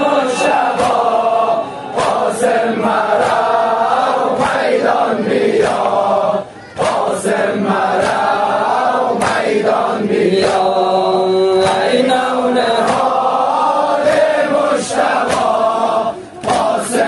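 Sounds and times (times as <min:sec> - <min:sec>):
voices chanting a lament: 0:00.0 - 0:17.0.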